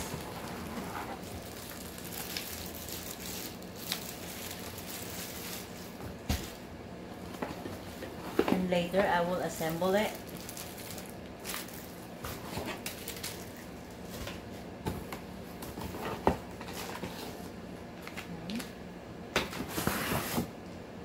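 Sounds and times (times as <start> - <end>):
crinkly plastic rustling: 0.0 - 6.6, 7.2 - 14.6.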